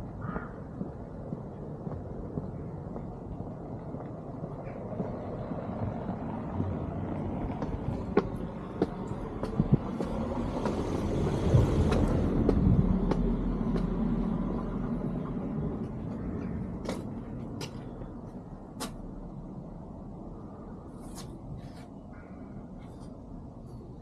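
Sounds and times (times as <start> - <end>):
motor vehicle passing by: 5.0 - 16.8.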